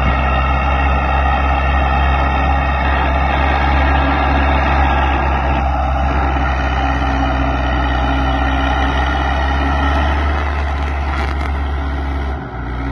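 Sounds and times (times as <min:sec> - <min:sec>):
tractor diesel engine under load: 0:00.0 - 0:12.9.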